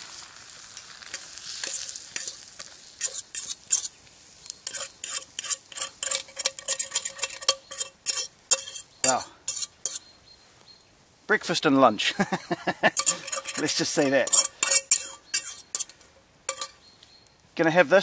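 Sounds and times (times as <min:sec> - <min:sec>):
sizzle from hot pan: 0:00.0 - 0:10.1, 0:12.8 - 0:17.3
utensil scraping frying pan: 0:00.0 - 0:10.1, 0:12.8 - 0:16.8
frying pan ringing faintly: 0:12.9 - 0:16.9.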